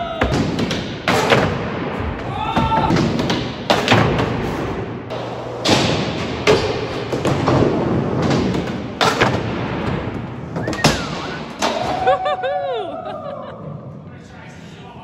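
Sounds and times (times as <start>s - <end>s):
person crying out: 11.8s - 13.6s.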